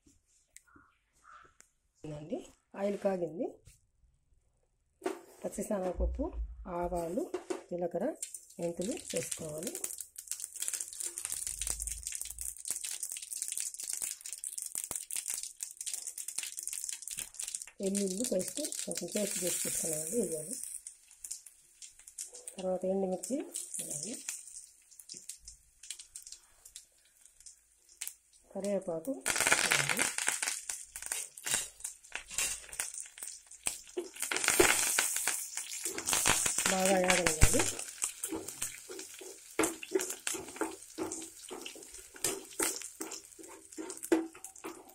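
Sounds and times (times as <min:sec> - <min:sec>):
spices sizzling and popping in oil: 0:06.9 - 0:44.9
spoon stirring pan: 0:35.6 - 0:44.9.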